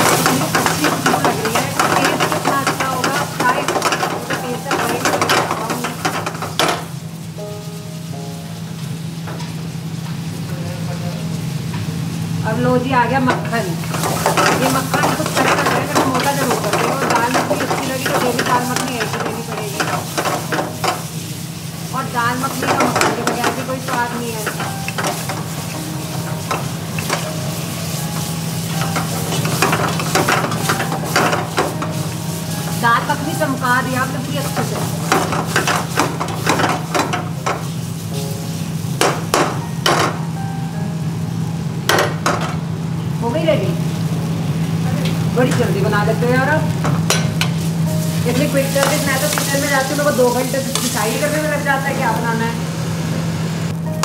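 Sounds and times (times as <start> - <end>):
food sizzling in a pan: 0.0 - 54.0
sharp knock on pan: 39.0 - 40.2.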